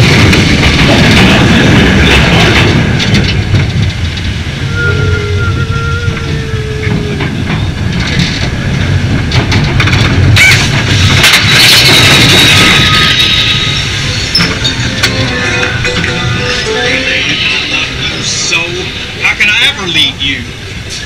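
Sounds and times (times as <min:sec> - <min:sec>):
train rolling on track rumble: 0:00.0 - 0:21.0
wheel clacks: 0:06.1 - 0:13.2.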